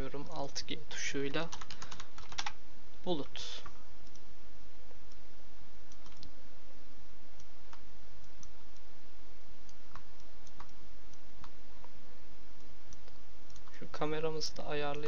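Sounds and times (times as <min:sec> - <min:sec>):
background hiss: 0:00.0 - 0:15.0
computer mouse and keyboard clicks: 0:01.3 - 0:02.6, 0:05.9 - 0:06.3, 0:09.8 - 0:10.8
low hum: 0:02.0 - 0:15.0.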